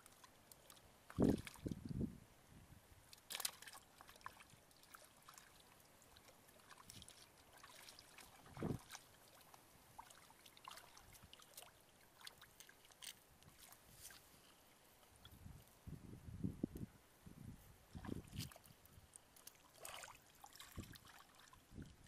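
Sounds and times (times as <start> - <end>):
shallow water splashing: 3.1 - 14.3, 17.9 - 22.0.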